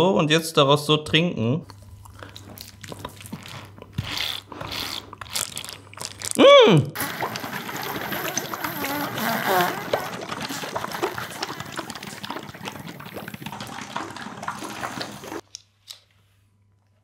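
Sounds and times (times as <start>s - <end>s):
liquid slurping through straw: 2.0s - 6.4s, 7.0s - 15.4s.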